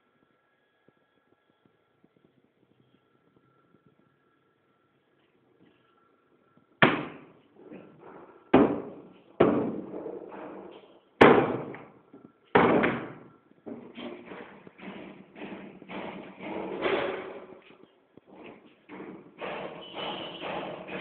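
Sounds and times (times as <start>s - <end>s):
door banging: 6.8s - 11.9s, 12.6s - 17.7s.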